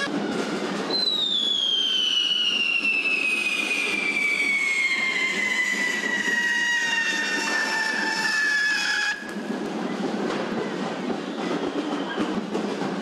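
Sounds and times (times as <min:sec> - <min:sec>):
firework fountain hissing: 0:00.0 - 0:12.5
shrill falling whistle: 0:00.9 - 0:09.3.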